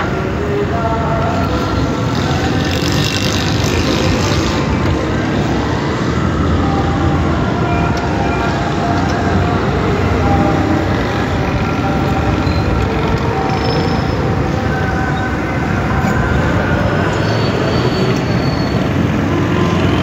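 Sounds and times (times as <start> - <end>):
city traffic rumble: 0.0 - 20.0.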